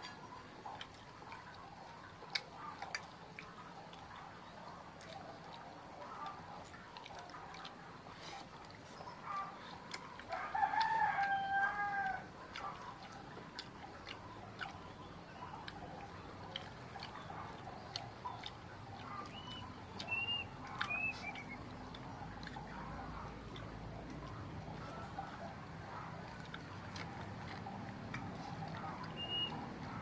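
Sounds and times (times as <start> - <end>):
rooster crowing: 10.3 - 12.3.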